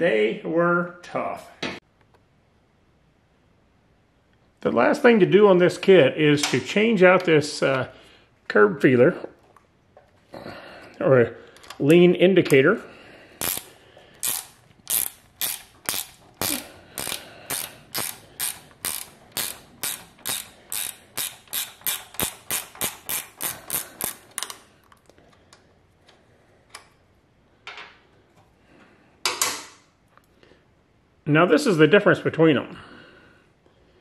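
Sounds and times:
socket ratchet clicking: 0:13.4 - 0:25.1.

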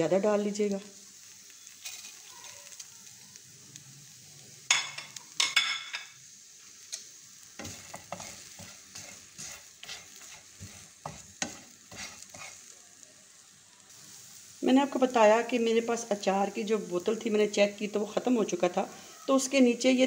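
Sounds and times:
vegetables sizzling in pan: 0:00.0 - 0:20.0
wooden spatula scraping pan: 0:07.6 - 0:12.7.

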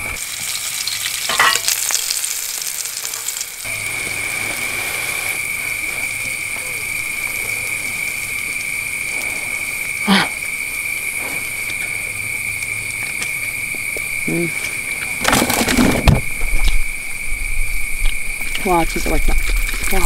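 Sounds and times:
food sizzling in frying pan: 0:00.0 - 0:14.2
night insects chirring: 0:00.0 - 0:20.0.

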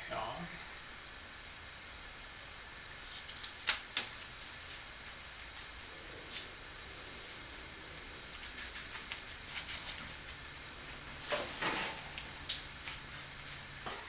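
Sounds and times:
brush scraping: 0:03.0 - 0:14.0
brush scratching on wood: 0:08.3 - 0:10.5, 0:11.3 - 0:14.0.

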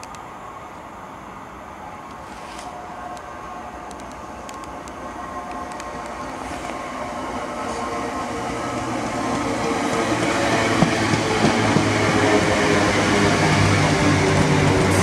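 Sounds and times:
sharp clicks: 0:00.0 - 0:00.2, 0:03.9 - 0:06.2
electric train hum: 0:00.0 - 0:15.0
train wheels rumbling: 0:01.4 - 0:15.0.

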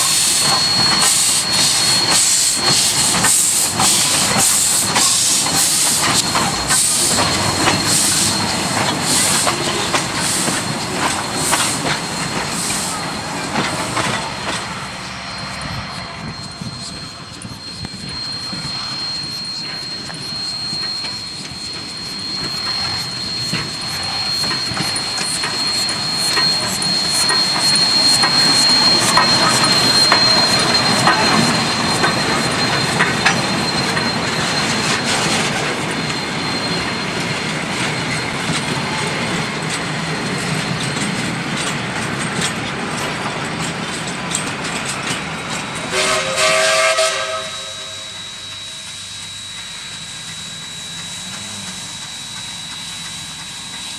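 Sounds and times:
steam train passing: 0:00.0 - 0:53.9
steam whistle blast: 0:45.9 - 0:49.9.

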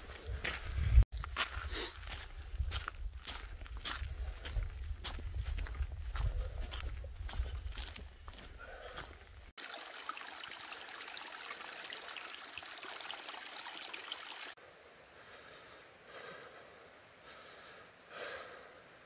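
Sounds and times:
creek babbling: 0:09.6 - 0:14.6
faint outdoor hush: 0:10.7 - 0:19.0.

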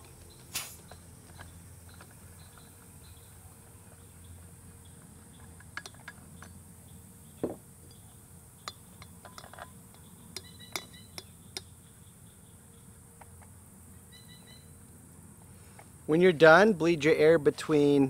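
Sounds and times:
light metallic clicks and clinks: 0:05.3 - 0:06.6, 0:07.8 - 0:11.7.

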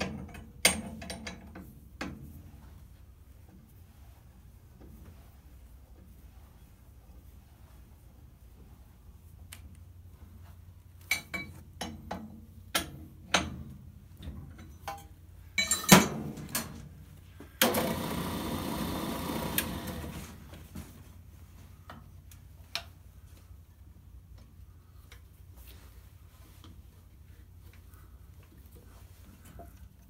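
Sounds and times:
metal clanks and clinks: 0:14.4 - 0:16.8.

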